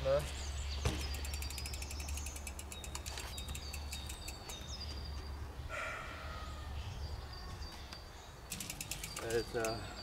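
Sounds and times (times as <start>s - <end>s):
birds chirping: 0.0s - 10.0s
bicycle freewheel ticking: 1.1s - 4.4s, 8.5s - 9.8s.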